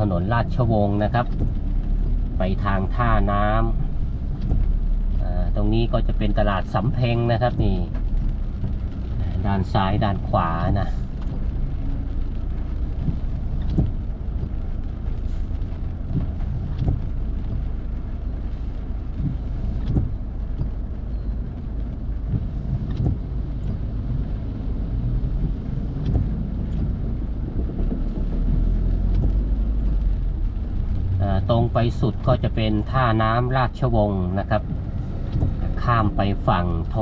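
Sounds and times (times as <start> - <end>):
car engine and tyre rumble: 0.0 - 37.0
light ticks: 3.6 - 5.2, 6.0 - 24.5, 25.2 - 31.1.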